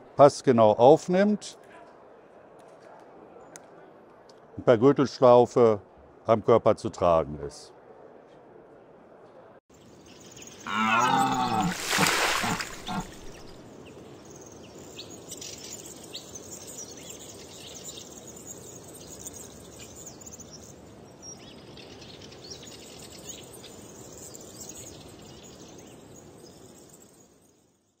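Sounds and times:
steady background hiss: 0:09.8 - 0:27.8.

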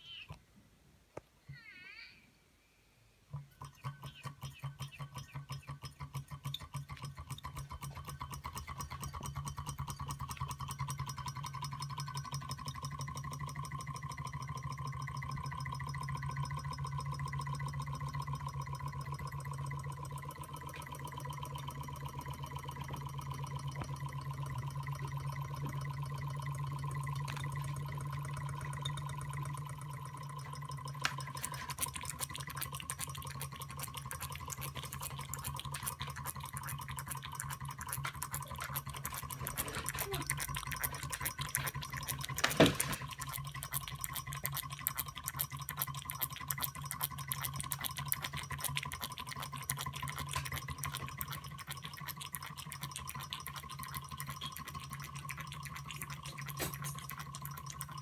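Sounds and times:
rapid fine ticking of pump: 0:03.3 - 0:58.0
water trickling and dripping: 0:03.4 - 0:58.0
steady hum: 0:11.9 - 0:58.0.

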